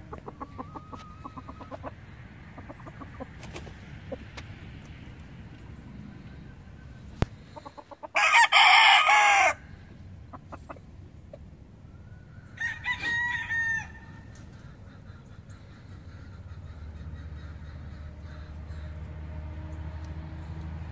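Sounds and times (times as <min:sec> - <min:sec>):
faint rooster crow: 0:08.2 - 0:09.6, 0:12.0 - 0:14.3
rooster crowing loudly: 0:08.2 - 0:09.6, 0:12.6 - 0:14.3.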